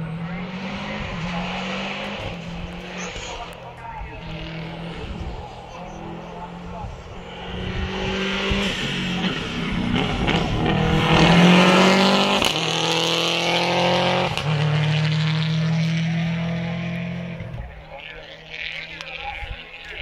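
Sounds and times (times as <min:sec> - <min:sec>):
rally car accelerating past: 0:04.2 - 0:17.6.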